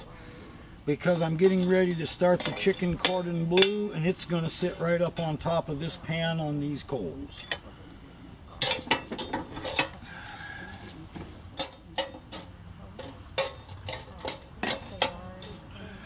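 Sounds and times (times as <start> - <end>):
metal tongs and coals clinking on iron: 0.9 - 5.6, 6.8 - 7.7, 8.5 - 15.7.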